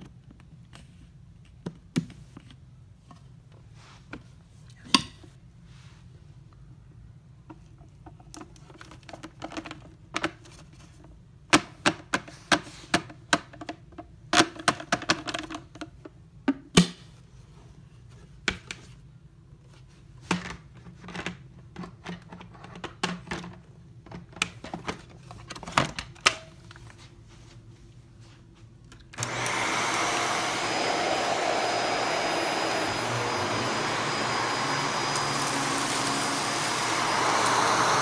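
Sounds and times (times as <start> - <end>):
clicks and knocks of handling: 7.5 - 16.9.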